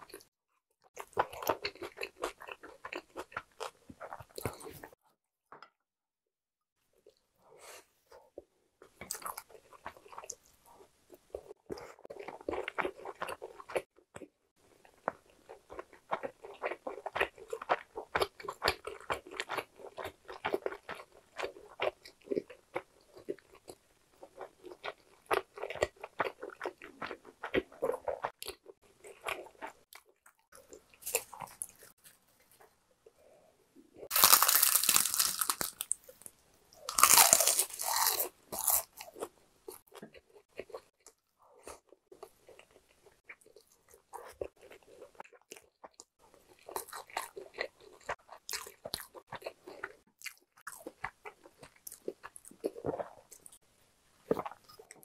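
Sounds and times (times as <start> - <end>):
wet chewing and crunching: 0.0 - 5.0, 8.8 - 32.7, 34.0 - 53.6, 54.2 - 55.0
dried seaweed crackling: 34.1 - 36.0.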